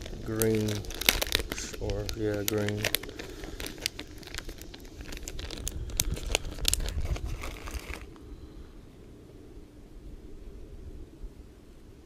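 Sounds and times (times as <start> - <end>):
plastic packaging crinkling: 0.0 - 8.2.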